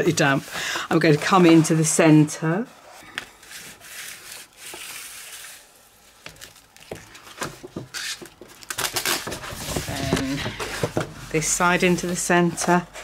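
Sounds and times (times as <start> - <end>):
paper crinkling: 3.2 - 13.0
bone folder rubbing paper: 3.4 - 5.7, 9.8 - 12.8.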